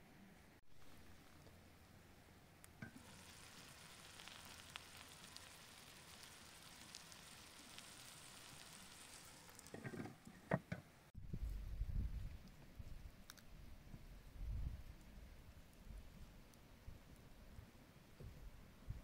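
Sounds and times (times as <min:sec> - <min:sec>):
water poured into pan: 0:02.8 - 0:09.8
rice sizzling in a pan: 0:02.8 - 0:10.0.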